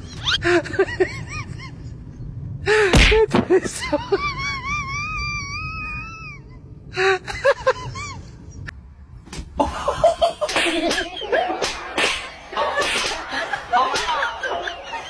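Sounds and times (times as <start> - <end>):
person laughing: 9.6 - 15.0.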